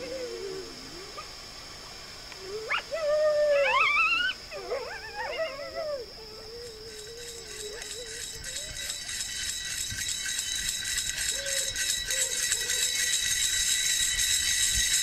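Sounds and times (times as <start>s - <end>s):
coyote howling: 0.0s - 1.3s, 2.4s - 9.3s, 11.1s - 13.4s
overlapping yips and howls: 2.3s - 14.2s
coyote yelping: 2.7s - 9.1s.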